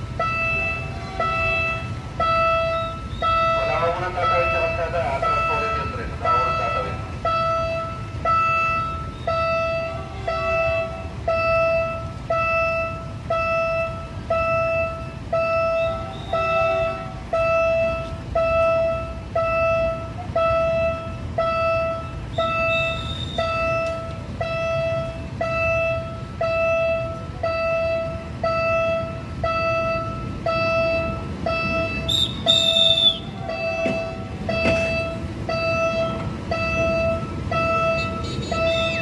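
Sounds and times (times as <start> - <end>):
level-crossing warning bell: 0.0 - 39.0
high whistle: 22.3 - 24.6, 31.5 - 35.1.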